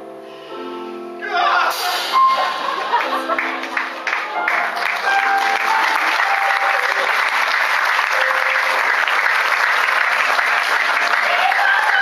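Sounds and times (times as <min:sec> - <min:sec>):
audience applauding: 0:02.4 - 0:12.0.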